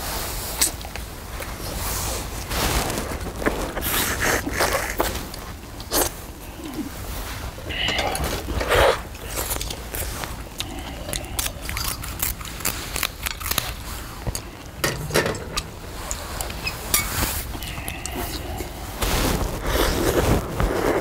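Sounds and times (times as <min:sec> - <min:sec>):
slurping: 0:01.8 - 0:14.8, 0:15.4 - 0:21.0
chewing: 0:02.3 - 0:14.8, 0:15.5 - 0:20.2
steady low rumble: 0:05.3 - 0:20.6
utensils clinking on metal pan: 0:14.8 - 0:15.8.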